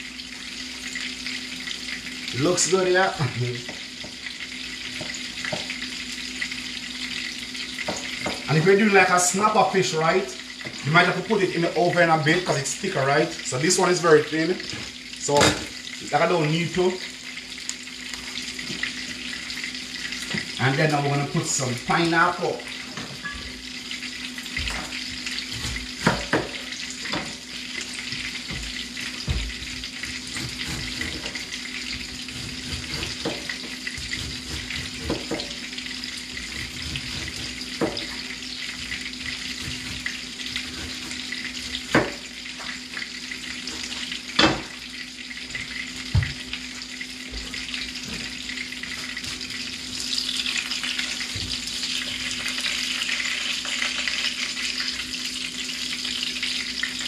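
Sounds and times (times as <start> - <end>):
fish sizzling in oil: 0.0 - 57.0.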